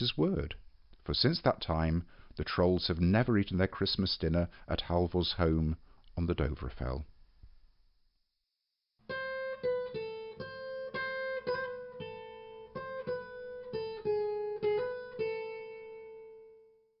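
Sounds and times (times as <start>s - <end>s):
acoustic guitar plucked melody: 9.0s - 16.8s.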